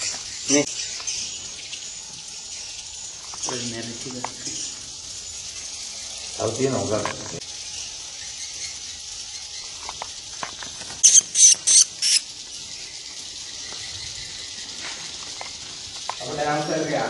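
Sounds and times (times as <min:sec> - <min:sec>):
steady high hiss: 0:00.0 - 0:17.0
bird shrill high squeaks: 0:11.0 - 0:12.4.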